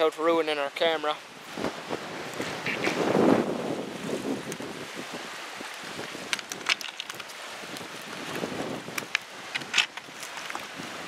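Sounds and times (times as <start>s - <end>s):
water moving against rock: 0.8s - 11.0s
wind buffeting microphone: 1.2s - 11.0s
sharp clicks and scrapes: 6.3s - 7.4s, 8.9s - 10.7s.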